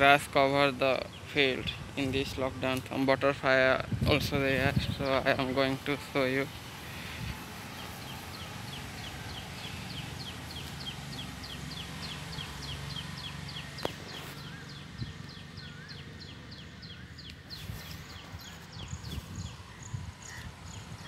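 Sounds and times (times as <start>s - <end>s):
bird chirping rapidly: 4.4s - 21.0s.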